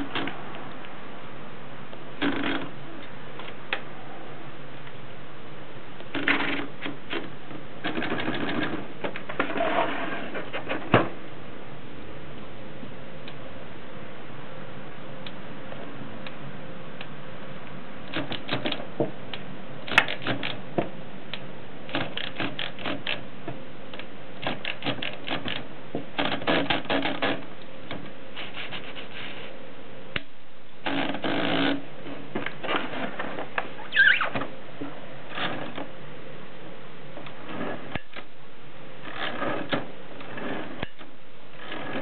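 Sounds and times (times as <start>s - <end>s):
typewriter carriage ratchet clicks: 19.9s - 20.6s.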